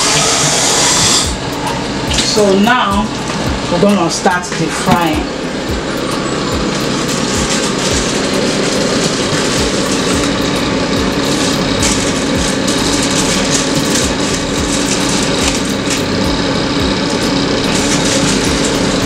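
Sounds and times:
hiss: 0.0 - 1.3
fan-like mechanical drone: 0.0 - 19.0
low hum: 0.7 - 19.0.

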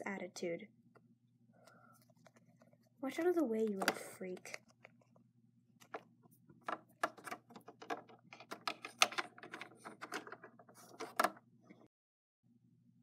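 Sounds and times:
plastic toys clicking and tapping: 6.7 - 11.4.

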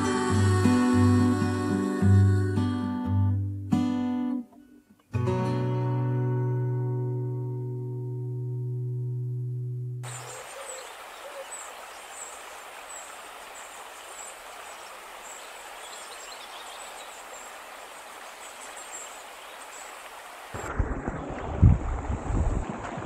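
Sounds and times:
running water hiss: 0.0 - 2.7, 10.0 - 20.7
guitar music: 0.0 - 10.0
small birds chirping: 10.0 - 20.4.

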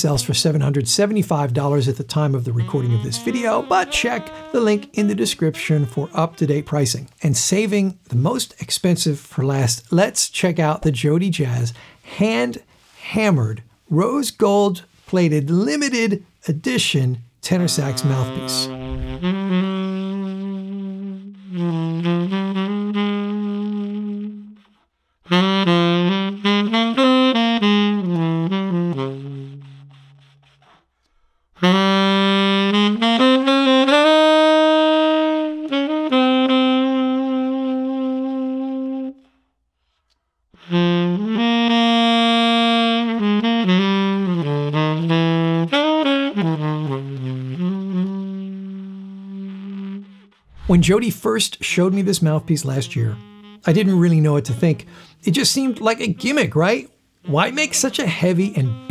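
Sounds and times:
tenor saxophone melody: 1.8 - 7.5, 17.4 - 30.8, 31.6 - 40.0, 40.6 - 58.9.

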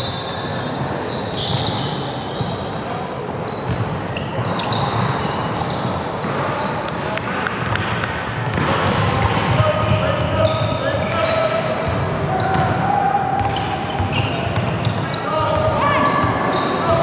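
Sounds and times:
trainers squeaking on floor: 0.0 - 2.8, 3.4 - 7.2, 9.0 - 17.0
basketball bouncing: 7.4 - 11.1.

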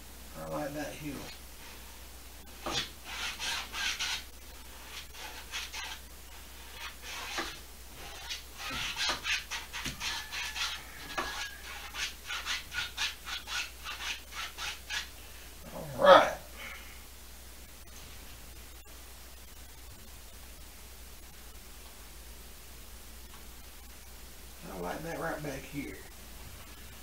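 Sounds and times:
paintbrush scrubbing on canvas: 2.6 - 15.3.

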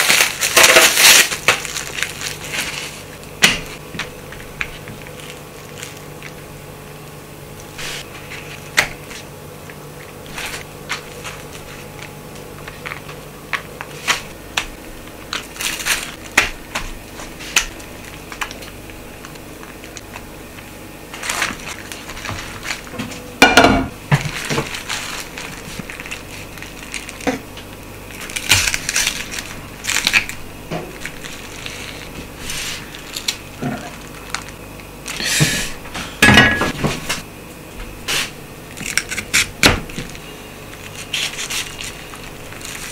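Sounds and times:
cabbage leaves crunching: 0.0 - 6.5, 15.2 - 20.0, 21.1 - 23.0, 24.0 - 35.2, 40.1 - 42.9.

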